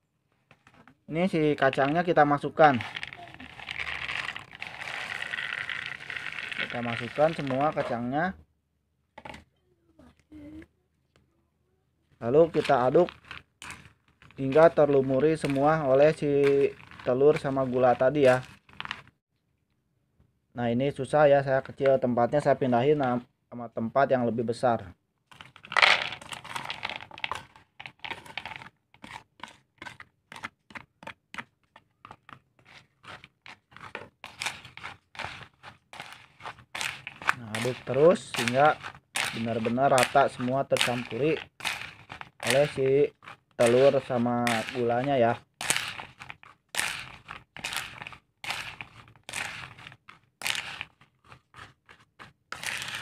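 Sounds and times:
plastic spatula scraping and stirring: 0:00.2 - 0:08.2, 0:11.9 - 0:19.2, 0:21.3 - 0:23.3, 0:24.7 - 0:53.0
peanuts tumbling into plastic basin: 0:00.5 - 0:08.1, 0:12.2 - 0:19.1, 0:25.3 - 0:28.7, 0:32.3 - 0:53.0.

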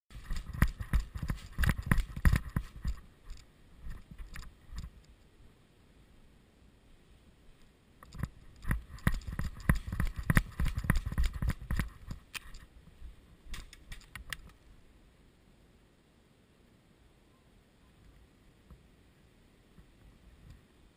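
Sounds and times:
quick running footsteps: 0:00.1 - 0:03.1, 0:08.6 - 0:12.2
gear rattling and knocking: 0:00.1 - 0:04.9, 0:08.0 - 0:12.6.

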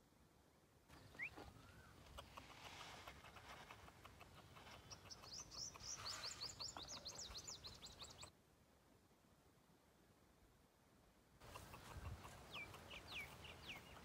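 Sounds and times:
small birds chirping: 0:00.9 - 0:08.3, 0:11.4 - 0:14.0.

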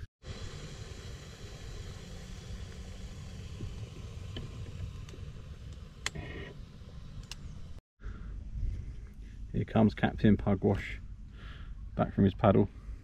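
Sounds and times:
faint hiss: 0:00.2 - 0:07.8.

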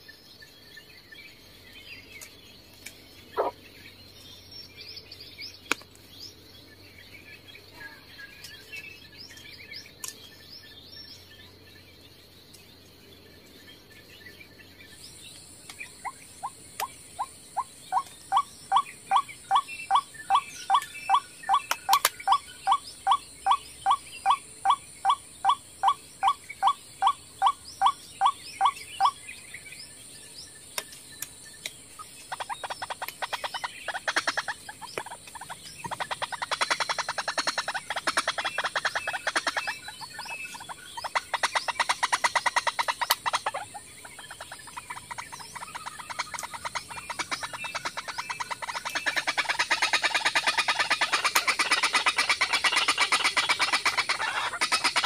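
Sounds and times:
harsh chattering bird call: 0:15.9 - 0:29.2, 0:32.2 - 0:55.0.

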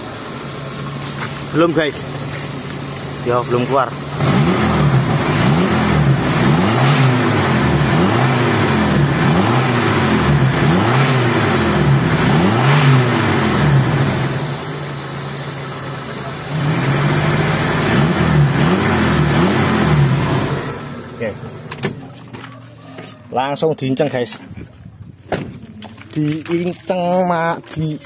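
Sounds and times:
engine revving: 0:03.2 - 0:21.7.

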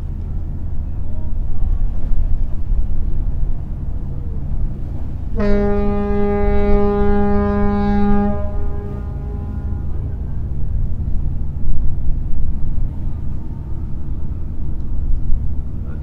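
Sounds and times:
low rumble: 0:00.0 - 0:16.0
ship's horn blast: 0:05.2 - 0:11.0.

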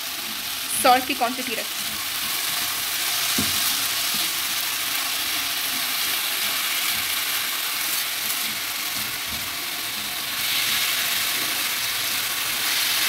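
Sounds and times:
potatoes sizzling in oil: 0:00.0 - 0:13.0
spatula stirring in a pan: 0:01.4 - 0:13.0.

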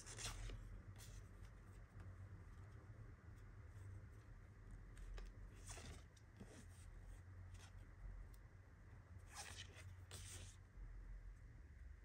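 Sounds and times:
postcards sliding and rustling: 0:00.0 - 0:01.5, 0:05.0 - 0:06.9, 0:09.3 - 0:10.6.

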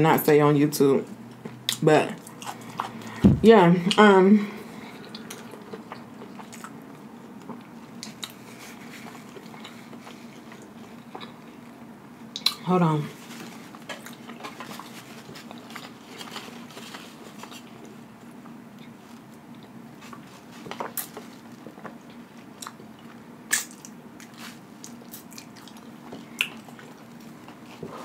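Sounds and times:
faint steady hum: 0:00.0 - 0:28.0
chewing with wet clicks: 0:05.0 - 0:08.4, 0:09.0 - 0:12.6, 0:20.8 - 0:27.6.

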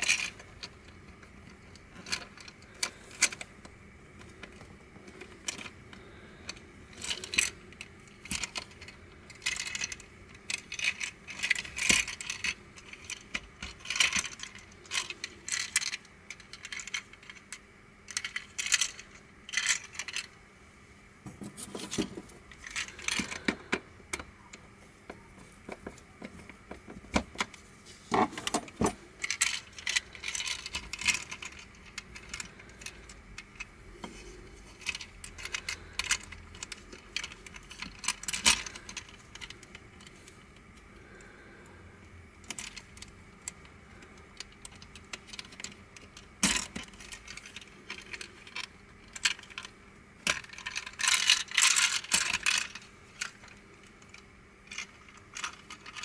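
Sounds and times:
plastic puzzle pieces clicking: 0:06.5 - 0:17.4, 0:42.4 - 0:56.0.

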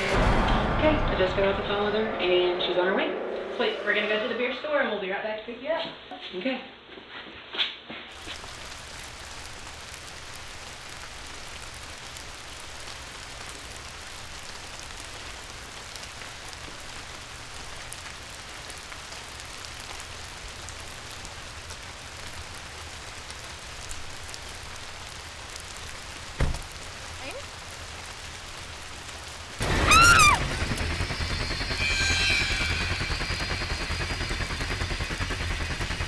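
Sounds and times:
steady rain falling: 0:08.1 - 0:36.0.

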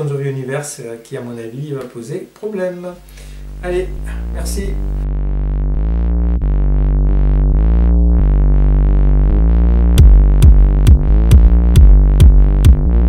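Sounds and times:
sustained synthesizer chord: 0:03.0 - 0:13.0
drum machine beat: 0:09.8 - 0:13.0.

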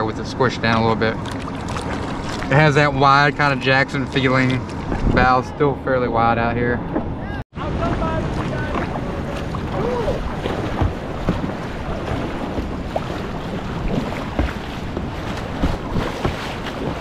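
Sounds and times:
paddle splashes: 0:00.6 - 0:05.2, 0:07.6 - 0:17.0
wind buffeting microphone: 0:01.2 - 0:17.0
whitewater rushing: 0:07.6 - 0:17.0.

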